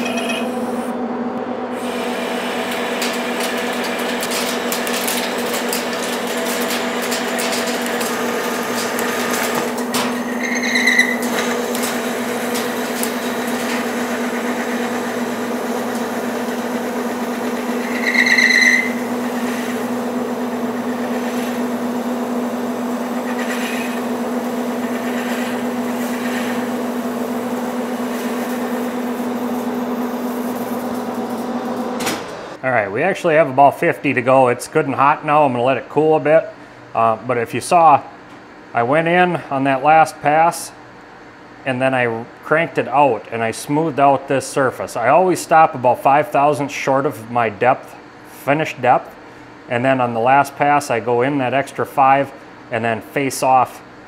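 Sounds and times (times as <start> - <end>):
high-pitched squeals from cut: 0.0 - 0.6, 10.2 - 11.4, 17.8 - 19.1
lathe spindle and gears humming: 0.0 - 32.6
metal cutting noise: 0.0 - 32.6.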